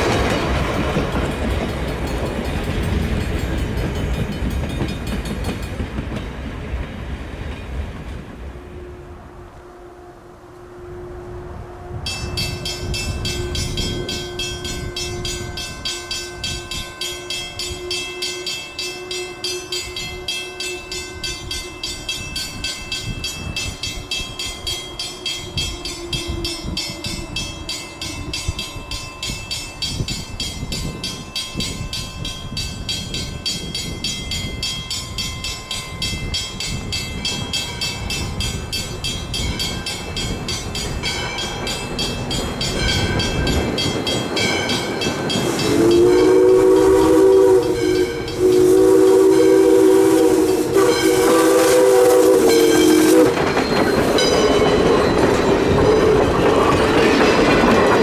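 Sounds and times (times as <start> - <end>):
locomotive rumbling: 0.0 - 9.6, 36.7 - 58.0
train whistle: 8.5 - 22.2, 24.2 - 28.6, 45.4 - 53.4, 55.7 - 56.4
crossing signal bell ringing: 12.0 - 56.7.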